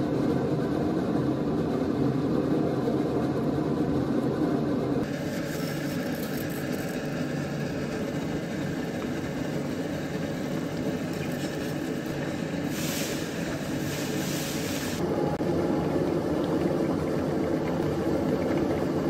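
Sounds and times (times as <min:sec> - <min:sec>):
high hiss: 0:12.5 - 0:15.0.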